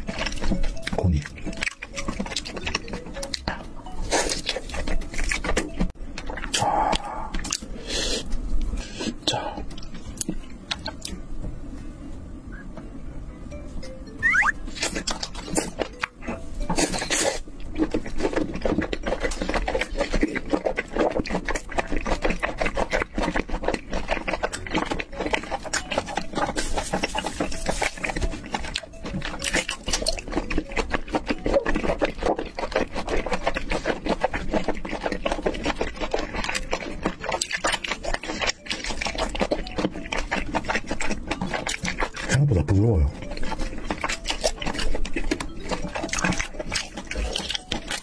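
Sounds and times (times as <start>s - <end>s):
person chewing: 0.0s - 11.2s, 13.5s - 48.0s.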